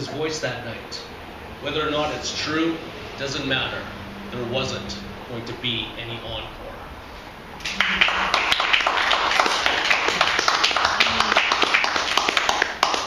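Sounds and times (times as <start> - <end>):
small audience clapping: 7.6 - 13.0.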